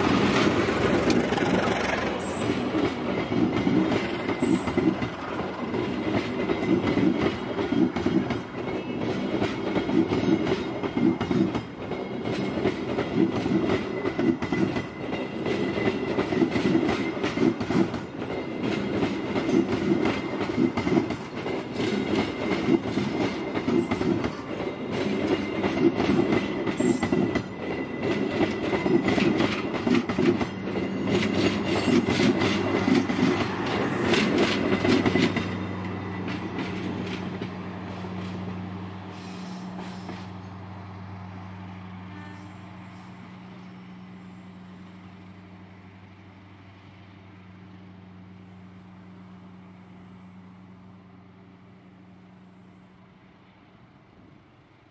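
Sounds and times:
clickety-clack of rail joints: 0:00.0 - 0:40.7
train wheels rumbling on rails: 0:00.0 - 0:54.9.

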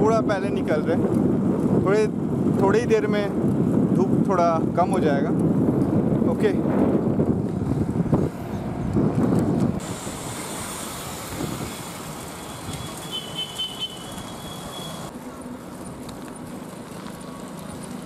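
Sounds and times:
road traffic: 0:00.0 - 0:18.0
motorbikes passing: 0:05.6 - 0:18.0.

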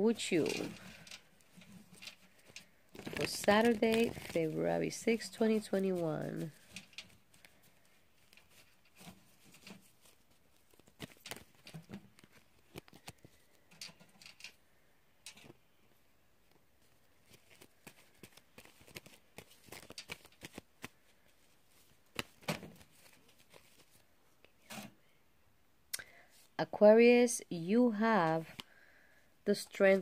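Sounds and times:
cards being shuffled: 0:01.4 - 0:13.6, 0:17.2 - 0:24.0.

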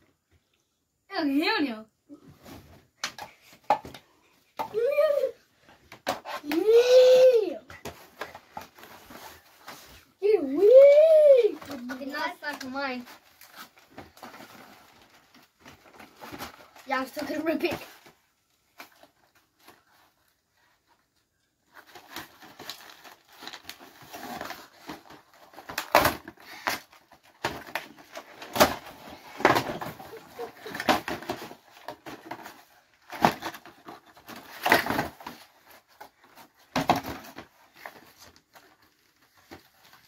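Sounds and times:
cardboard box ripping: 0:21.8 - 0:38.3.

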